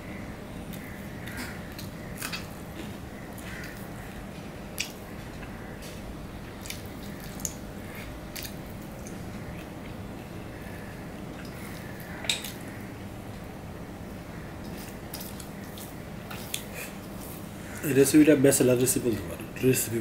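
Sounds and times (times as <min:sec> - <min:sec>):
wet chewing and squishing: 0:04.7 - 0:05.6, 0:06.5 - 0:12.8, 0:14.6 - 0:17.2.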